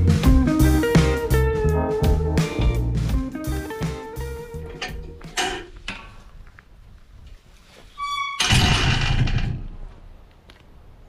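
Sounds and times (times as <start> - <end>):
guitar music: 0.0 - 5.4
short high squeak: 7.9 - 8.6.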